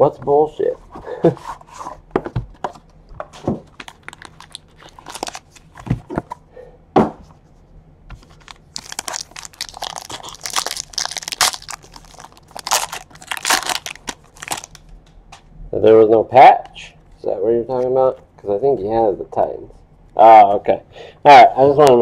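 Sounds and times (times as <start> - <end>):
foil wrapper tearing and crinkling: 3.7 - 5.8, 8.2 - 14.9.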